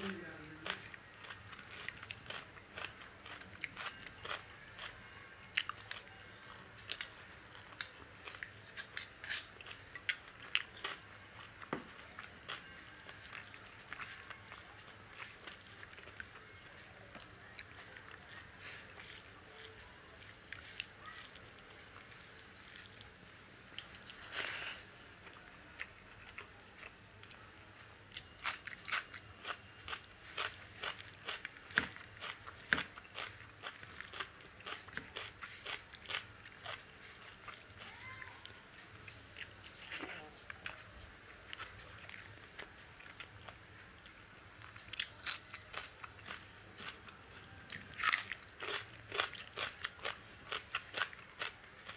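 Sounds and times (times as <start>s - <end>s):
wet chewing: 5.5s - 23.1s, 28.1s - 38.5s, 47.7s - 51.9s.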